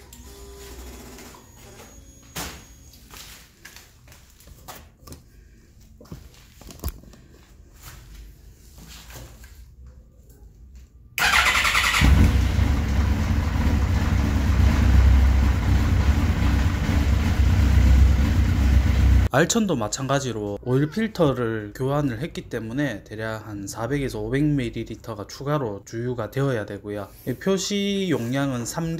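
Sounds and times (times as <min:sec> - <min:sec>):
motorcycle engine starting and running: 0:11.2 - 0:19.3.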